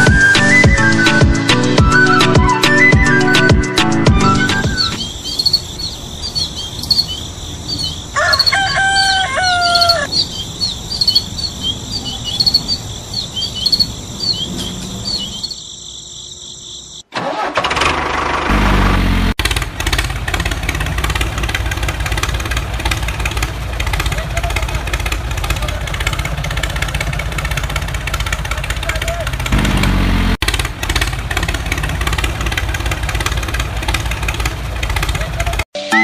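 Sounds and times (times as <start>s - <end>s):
engine starting and running: 0.0s - 5.1s, 17.0s - 35.7s
birds chirping: 0.0s - 17.1s.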